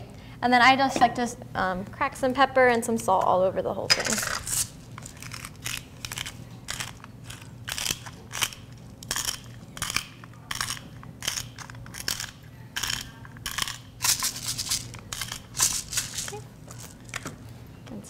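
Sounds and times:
spice grinder crunching: 3.9 - 17.3.

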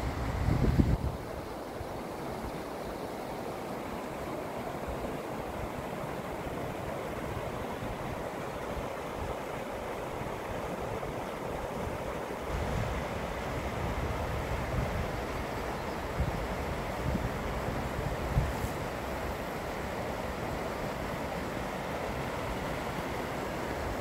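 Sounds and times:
wind buffeting microphone: 0.0 - 1.2
creek rushing over rocks: 0.0 - 24.0.

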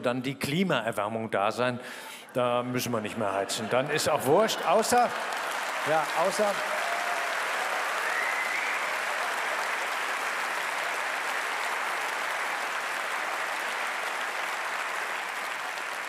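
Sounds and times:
audience applauding: 3.5 - 16.0.

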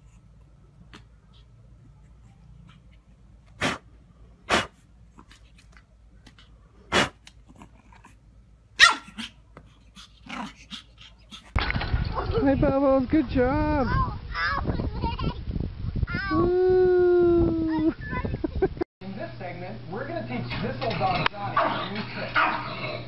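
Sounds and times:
puppy barking: 8.8 - 9.4, 21.6 - 22.8.

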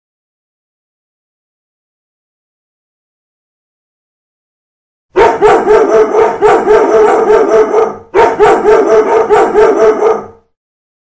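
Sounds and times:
dogs barking: 5.2 - 10.4.

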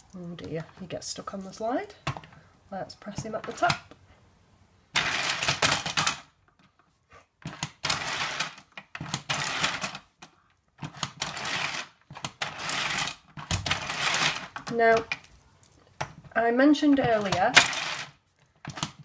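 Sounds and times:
plastic toy windmill rattling: 7.5 - 10.0, 10.8 - 15.1, 16.8 - 19.0.

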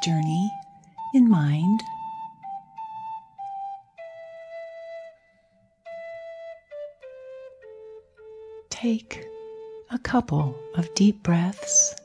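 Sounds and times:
slow flute melody: 0.0 - 12.0.

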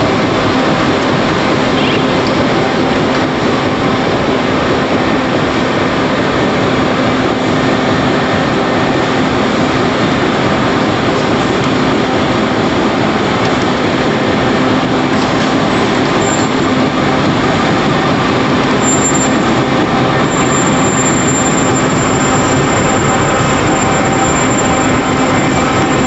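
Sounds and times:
printing machine mechanical din: 0.0 - 26.0
faint machine whine: 14.5 - 26.0.

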